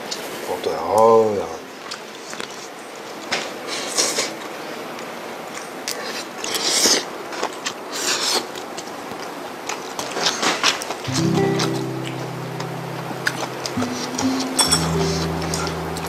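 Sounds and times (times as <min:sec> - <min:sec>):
soft background music: 0:11.1 - 0:16.0.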